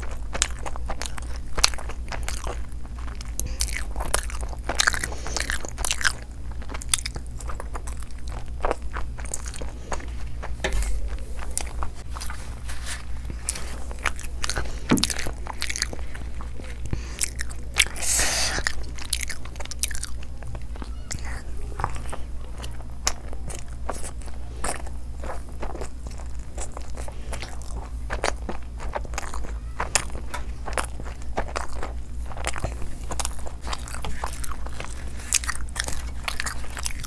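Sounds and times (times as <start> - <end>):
chewing with wet smacks: 0.0 - 37.0
low steady hum: 0.0 - 37.0
rustling: 8.6 - 17.2.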